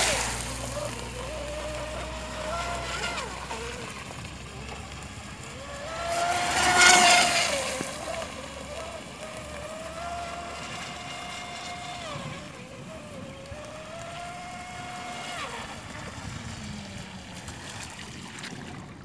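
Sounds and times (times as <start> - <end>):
speedboat motor whining: 0.0 - 19.0.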